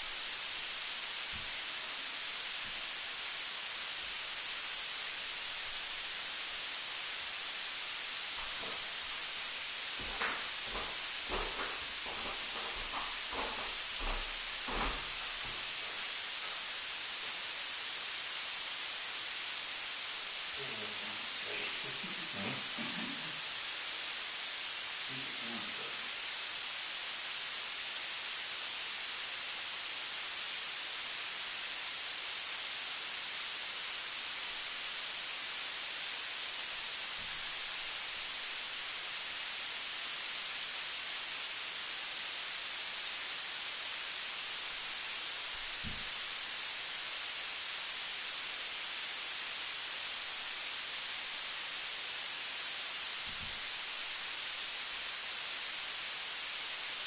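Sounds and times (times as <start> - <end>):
recording noise hiss: 0.0 - 57.0.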